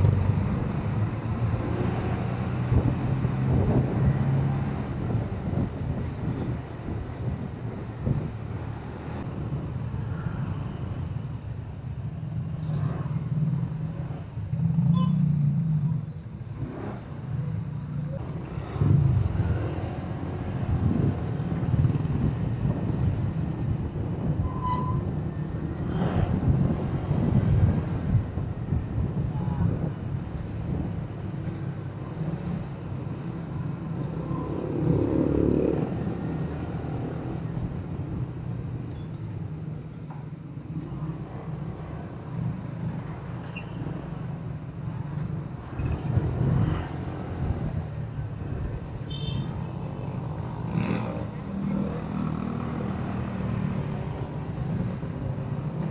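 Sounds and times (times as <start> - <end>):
wind and road rumble: 0.0 - 55.9.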